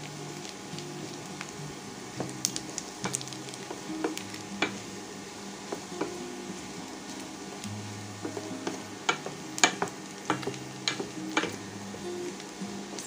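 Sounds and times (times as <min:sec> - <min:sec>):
meat sizzling in a pan: 0:00.0 - 0:13.0
spatula knocking against pan: 0:08.2 - 0:11.6.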